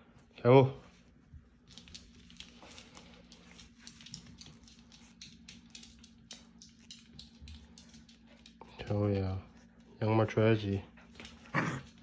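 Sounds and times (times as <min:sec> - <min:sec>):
puppy claws clicking on wooden floor: 0:01.6 - 0:09.2.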